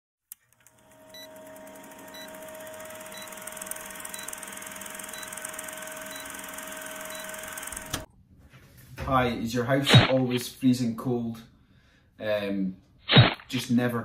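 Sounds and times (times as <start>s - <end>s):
film projector whirring and clattering: 0.3s - 8.1s.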